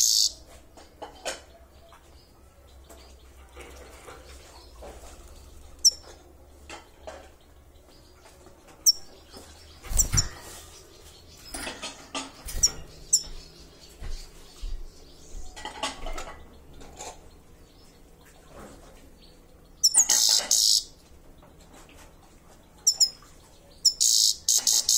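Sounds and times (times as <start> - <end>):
bird giving high call notes: 0.0 - 0.4.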